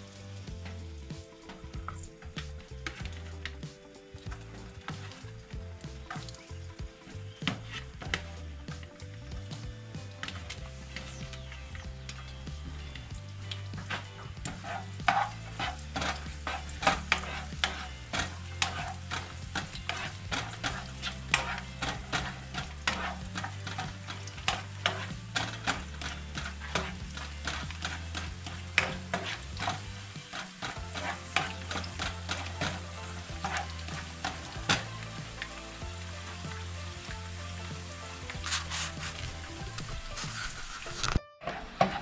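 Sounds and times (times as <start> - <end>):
garlic sizzling in hot oil: 0.0 - 41.2
spoon scraping and tapping pan: 13.4 - 35.6.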